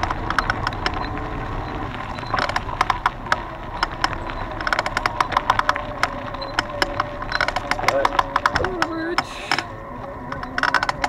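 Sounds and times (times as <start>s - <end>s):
bicycle tyres rolling on gravel: 0.0s - 11.0s
gravel clicks and bike rattles: 0.0s - 11.0s.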